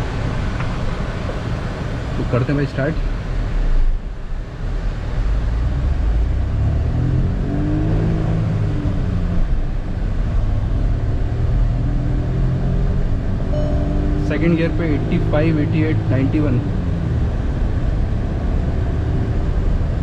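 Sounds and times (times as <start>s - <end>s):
car engine accelerating hard: 5.3s - 20.0s.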